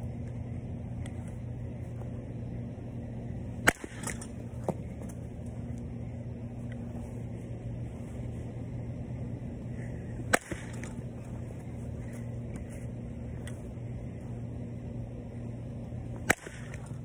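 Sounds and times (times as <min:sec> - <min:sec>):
steady low hum: 0:00.0 - 0:17.0
bat hitting ball crack: 0:03.6 - 0:05.1, 0:10.2 - 0:11.1, 0:16.2 - 0:17.0.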